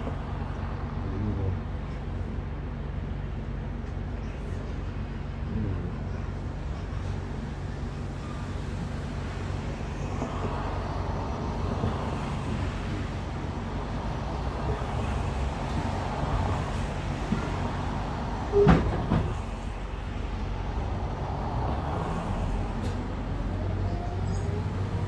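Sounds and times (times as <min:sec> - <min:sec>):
bus drivetrain hum: 0:00.0 - 0:25.0
road noise: 0:00.0 - 0:25.0.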